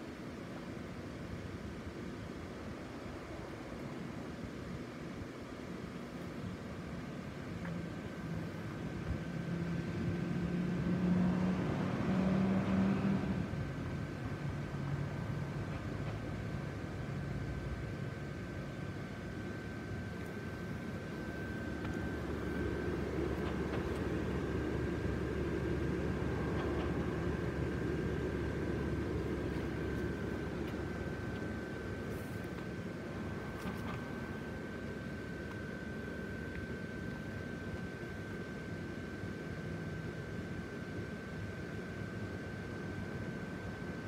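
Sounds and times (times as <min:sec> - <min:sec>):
blower fans whirring: 0:00.0 - 0:44.0
thin high whine: 0:00.0 - 0:44.0
deeper hum: 0:08.0 - 0:38.6.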